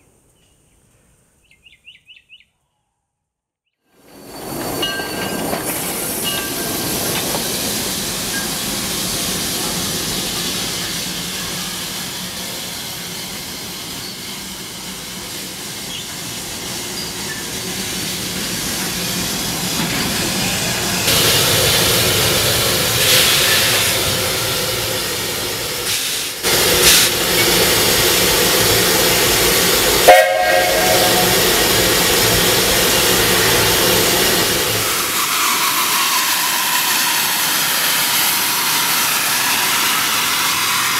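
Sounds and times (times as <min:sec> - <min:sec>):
steam hissing: 0:04.0 - 0:40.9
steady tones: 0:27.4 - 0:35.2.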